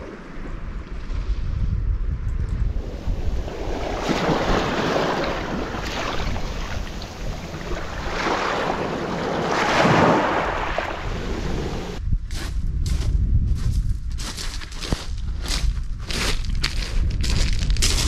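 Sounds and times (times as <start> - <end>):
wind rumbling on microphone: 0.0 - 18.0
small waves washing over sand: 2.7 - 12.0.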